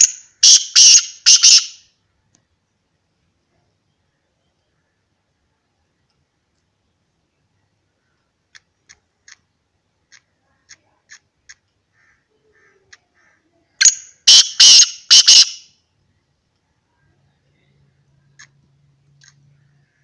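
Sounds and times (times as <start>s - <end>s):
bird's harsh grating call: 0.0s - 1.8s, 12.0s - 15.7s.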